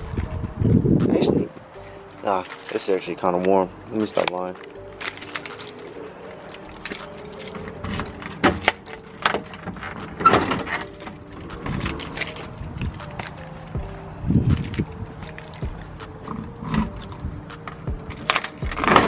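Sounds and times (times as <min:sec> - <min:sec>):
keys jangling: 0:04.1 - 0:19.0.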